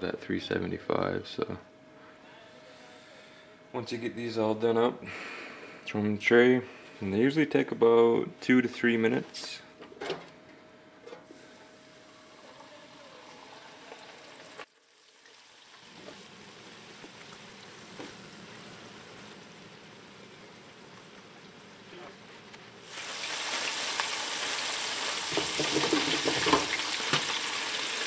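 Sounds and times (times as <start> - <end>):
food deep-frying in hot oil: 12.2 - 28.0.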